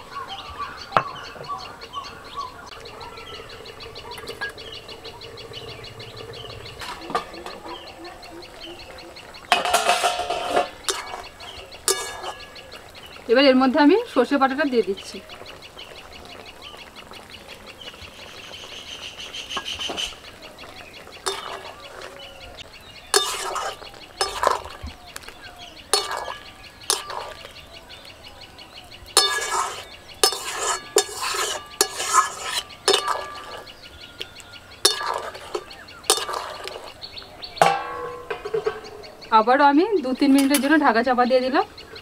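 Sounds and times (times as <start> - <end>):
metal spatula scraping wok: 3.5 - 8.0, 9.2 - 13.2, 19.6 - 27.6, 29.1 - 34.0, 34.8 - 37.0, 37.6 - 39.4, 40.1 - 41.0
metal lid clanking onto wok: 6.6 - 8.0, 9.4 - 12.7, 21.2 - 22.2, 23.1 - 24.8, 25.9 - 27.5, 29.2 - 33.8, 34.8 - 37.0, 37.6 - 39.3, 40.3 - 40.9.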